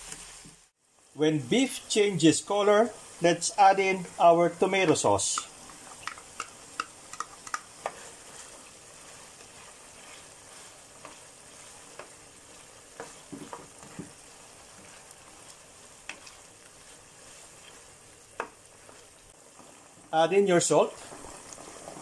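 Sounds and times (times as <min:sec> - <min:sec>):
meat sauce sizzling in a pan: 0:00.0 - 0:22.0
spatula scraping a pan: 0:05.8 - 0:19.9.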